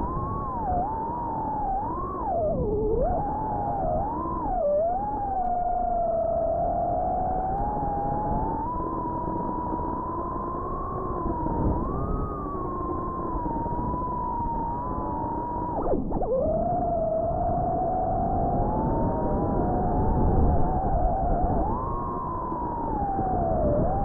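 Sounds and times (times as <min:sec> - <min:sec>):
quadcopter motors whining: 0:08.7 - 0:15.8.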